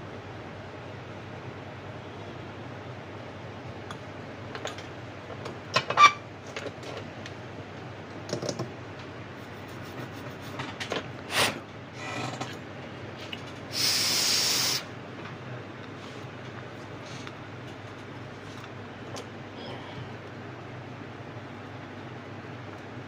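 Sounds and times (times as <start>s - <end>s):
loud hiss: 13.7s - 14.9s.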